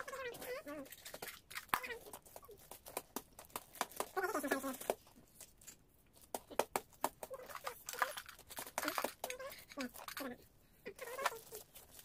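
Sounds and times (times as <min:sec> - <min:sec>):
wrapping paper crinkling: 0:07.3 - 0:10.3, 0:11.0 - 0:12.0.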